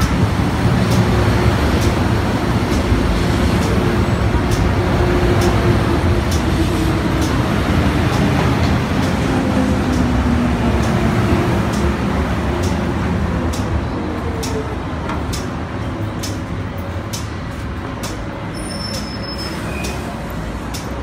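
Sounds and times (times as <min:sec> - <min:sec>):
train rumble and braking whine: 0:00.0 - 0:21.0
train wheel clicks: 0:00.0 - 0:21.0
high brake squeal: 0:18.4 - 0:20.3.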